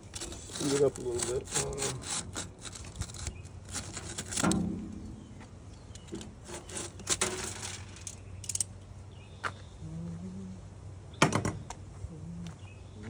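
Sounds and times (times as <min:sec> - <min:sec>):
small clicks and scrapes: 0:00.0 - 0:04.7, 0:05.7 - 0:08.7.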